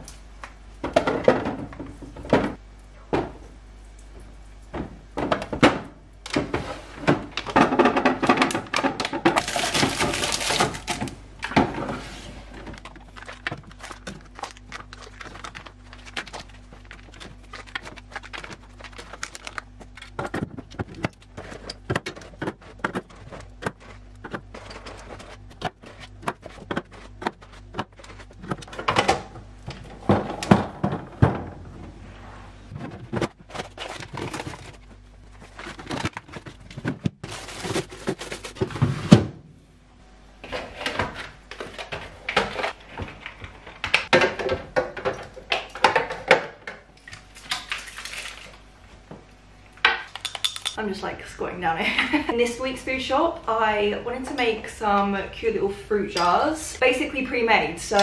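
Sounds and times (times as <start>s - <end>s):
plastic bins knocking on glass shelves: 4.8s - 11.9s
plastic bins scuffing: 29.7s - 39.4s.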